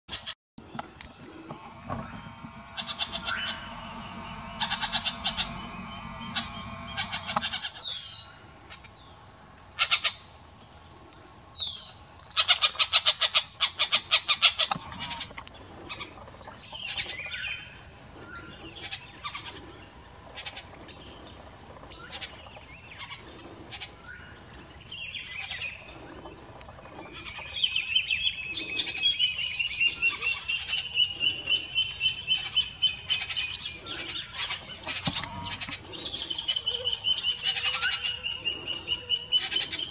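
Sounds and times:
repeated bird notes: 0.6s - 7.8s
high-pitched buzz: 0.6s - 7.9s, 14.7s - 15.4s, 34.7s - 36.1s
fast clicking rattle: 0.7s - 7.7s.

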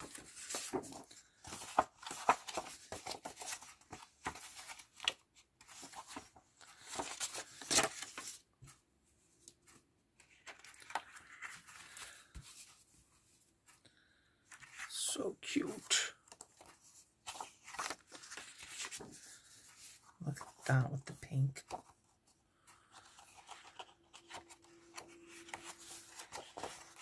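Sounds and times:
paper rustling and swishing: 0.0s - 8.8s, 16.6s - 20.6s, 23.0s - 27.0s.

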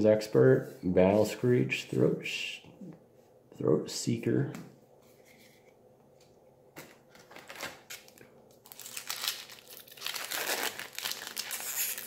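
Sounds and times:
foil wrapper tearing and crinkling: 7.3s - 12.0s.

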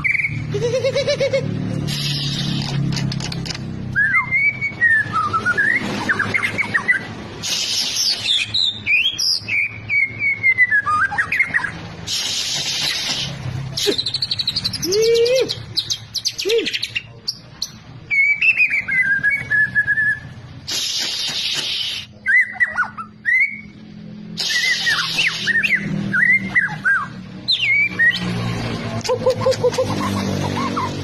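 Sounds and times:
bird whistling song: 0.0s - 0.5s, 3.9s - 11.8s, 12.8s - 23.8s, 24.4s - 28.3s
harsh rasping bird calls: 1.8s - 4.7s, 6.0s - 19.3s, 20.7s - 23.7s, 24.4s - 31.0s.

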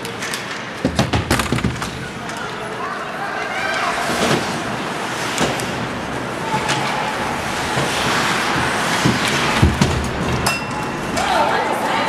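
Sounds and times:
hockey sticks and puck clacking: 0.0s - 2.6s, 3.6s - 11.4s
skates scraping ice: 3.3s - 12.0s.

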